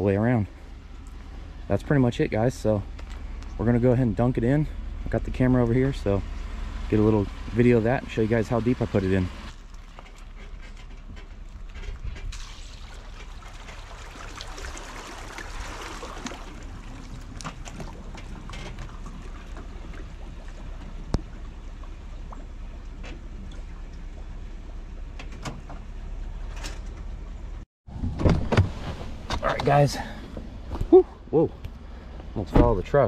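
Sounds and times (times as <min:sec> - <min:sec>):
low steady rumble: 0:00.0 - 0:33.0
water sloshing and lapping: 0:06.9 - 0:25.2.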